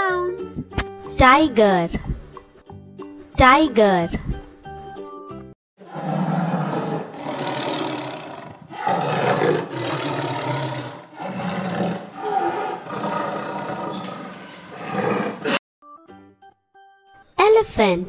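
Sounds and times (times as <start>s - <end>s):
tiger roaring: 5.8s - 15.6s.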